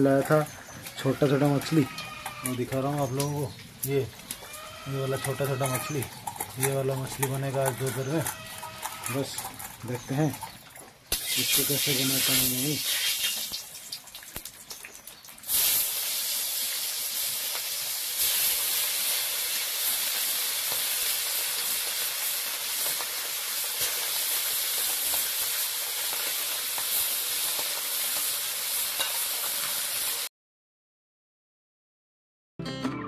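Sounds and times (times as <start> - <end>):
fish frying in hot oil: 10.6 - 30.3.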